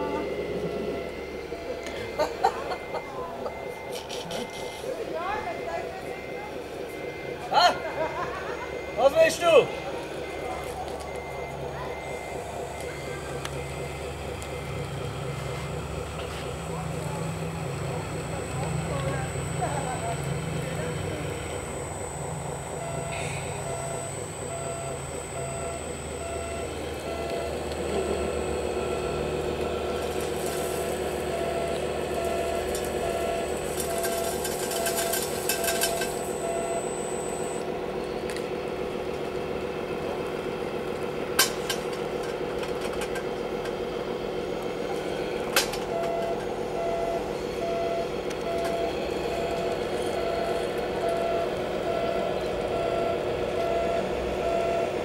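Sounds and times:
repeating electronic beep: 0:00.0 - 0:04.8, 0:05.5 - 0:37.6, 0:45.9 - 0:55.0
small motor humming: 0:11.0 - 0:38.5.

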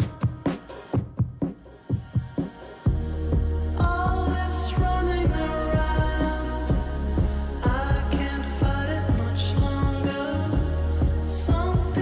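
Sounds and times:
music with steady beat: 0:00.0 - 0:12.0
deep sustained bass: 0:02.9 - 0:12.0.

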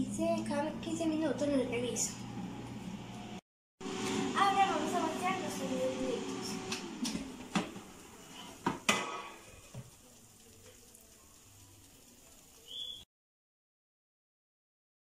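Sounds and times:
faint food sizzle: 0:03.8 - 0:13.1.

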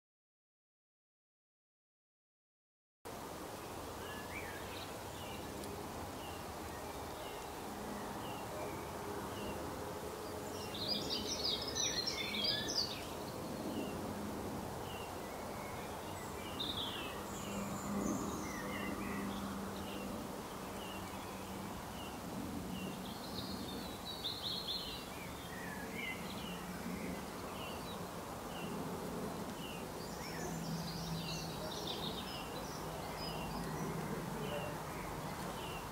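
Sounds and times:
high twittering birdsong: 0:03.5 - 0:35.9
birds chirping: 0:03.6 - 0:35.9.

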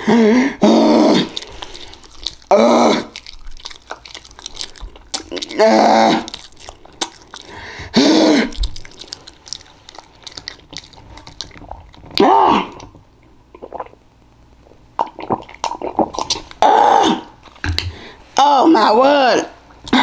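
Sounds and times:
chewing and mouth-smacking: 0:01.2 - 0:14.0, 0:15.0 - 0:16.6.

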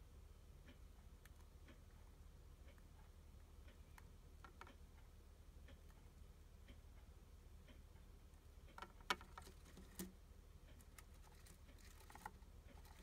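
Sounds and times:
hamster chewing crunchily: 0:10.8 - 0:13.0.

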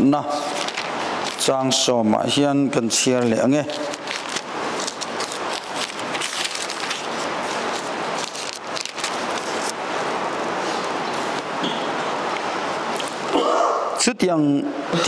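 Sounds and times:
book pages rustling: 0:00.4 - 0:01.5, 0:03.6 - 0:09.8, 0:10.6 - 0:11.5.

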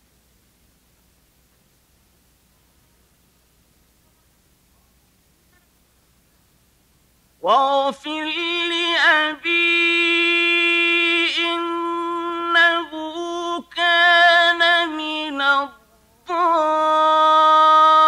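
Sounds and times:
man reciting melodically: 0:07.4 - 0:18.0.

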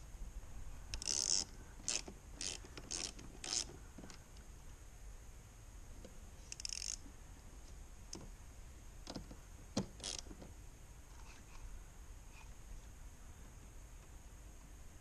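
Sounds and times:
screwdriver clicks and scrapes: 0:00.9 - 0:03.7.

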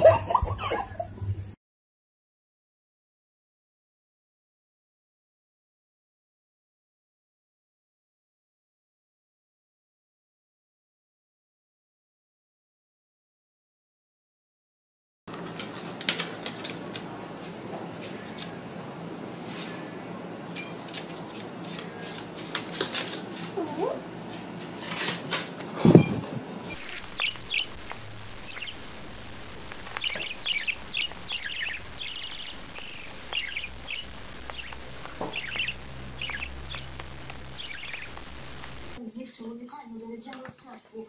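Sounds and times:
parrot chirping: 0:25.8 - 0:28.9, 0:29.8 - 0:38.7.

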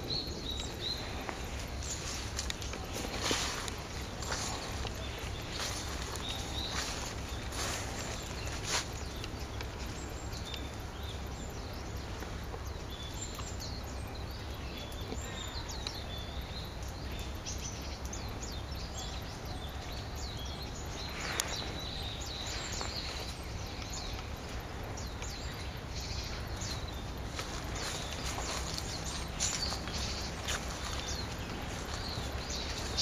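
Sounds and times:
songbirds calling: 0:00.0 - 0:33.0
steady background noise: 0:00.0 - 0:33.0.

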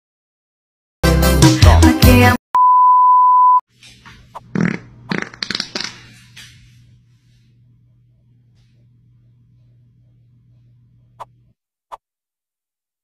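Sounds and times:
loud music: 0:01.0 - 0:02.4
steady high beep tone: 0:02.6 - 0:03.6
faint low hum: 0:06.3 - 0:11.5.

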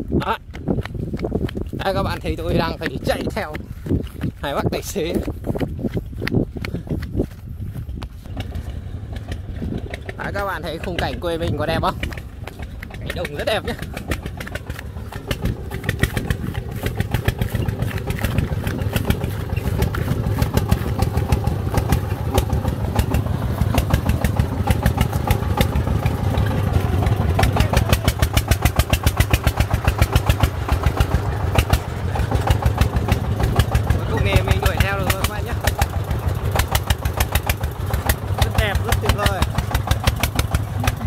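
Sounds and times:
single-cylinder diesel engine chugging: 0:01.6 - 0:41.0.

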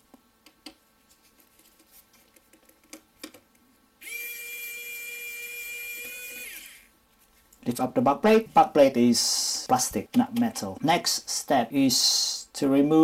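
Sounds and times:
electric screwdriver whine: 0:04.0 - 0:06.9.

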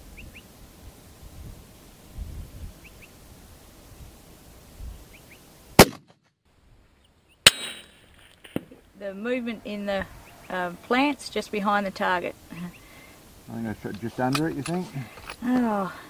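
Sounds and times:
wind rumble on microphone: 0:00.0 - 0:05.1
rifle shot: 0:05.8 - 0:06.2, 0:07.4 - 0:08.0.

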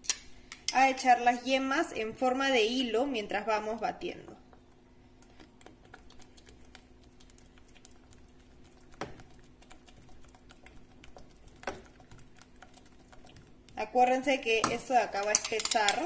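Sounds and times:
faint steady hum: 0:00.0 - 0:16.0.

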